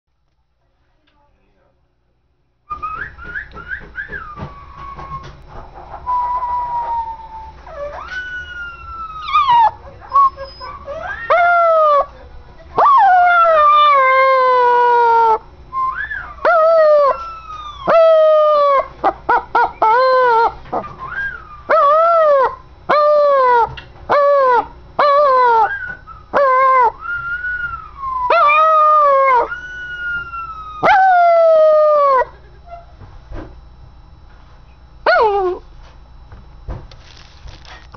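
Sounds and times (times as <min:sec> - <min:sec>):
whistle: 0:02.7 - 0:05.3, 0:06.0 - 0:07.5, 0:15.7 - 0:16.3
puppy howling: 0:02.7 - 0:12.1, 0:12.8 - 0:32.3, 0:35.0 - 0:35.6
puppy yelping: 0:06.1 - 0:12.1, 0:12.8 - 0:32.3.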